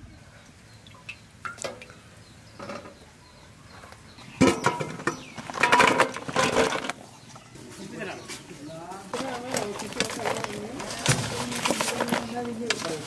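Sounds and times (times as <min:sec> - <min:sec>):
vegetable slices clattering in metal pot: 0:04.4 - 0:07.0, 0:09.2 - 0:13.0.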